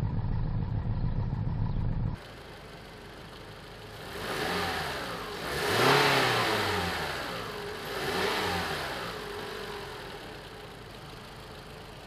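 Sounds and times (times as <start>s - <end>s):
car engine revving: 3.8s - 10.8s.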